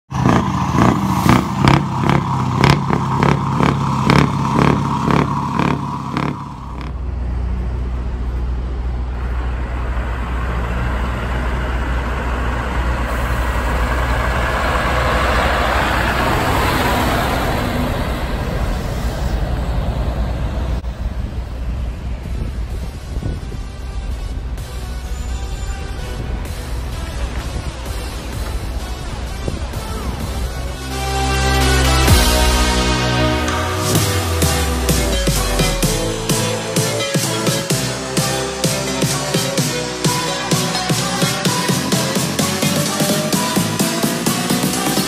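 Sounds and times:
truck engine rumbling past: 0:00.1 - 0:45.0
rhythmic music beat: 0:02.6 - 0:06.9, 0:30.6 - 0:45.0.

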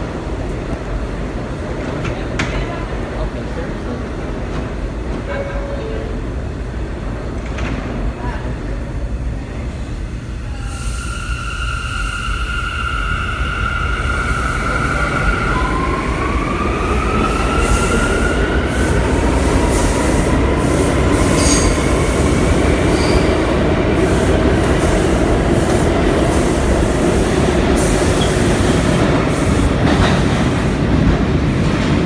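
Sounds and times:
wheels rumbling on rail: 0:16.2 - 0:32.0.

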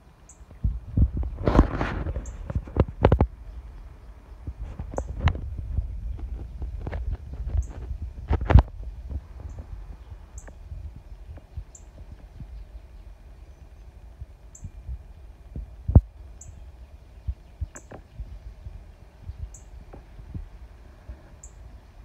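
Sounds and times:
low rumble: 0:00.0 - 0:22.0
microphone handling thumps: 0:00.6 - 0:03.4, 0:04.4 - 0:12.5.

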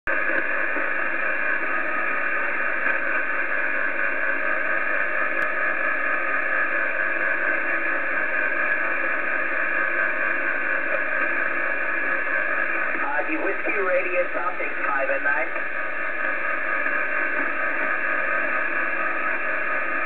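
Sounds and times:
shortwave radio static hiss: 0:00.1 - 0:20.0.

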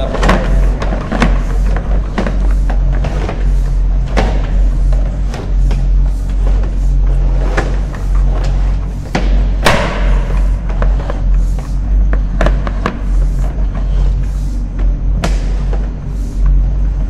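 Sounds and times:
low hum: 0:00.0 - 0:17.0
heavy knock: 0:09.1 - 0:11.2.

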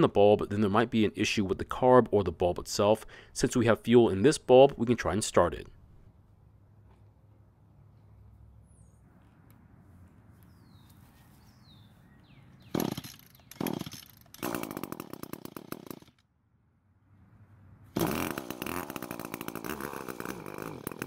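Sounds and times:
starter cord pulls: 0:18.0 - 0:21.0
two-stroke engine running: 0:18.0 - 0:21.0.

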